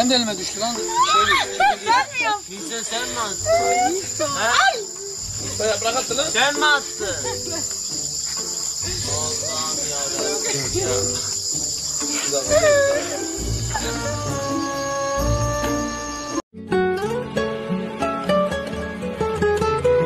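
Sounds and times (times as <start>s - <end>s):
crickets chirring: 0.0s - 16.4s
people talking quietly: 8.6s - 14.2s.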